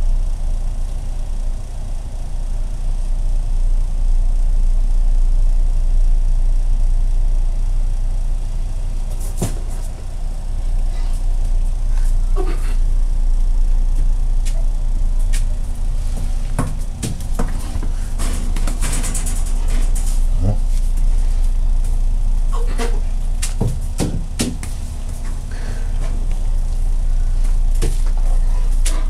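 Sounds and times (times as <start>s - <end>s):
steady low rumble: 0.0s - 29.0s
knocks and thumps: 16.2s - 20.0s, 23.4s - 24.8s.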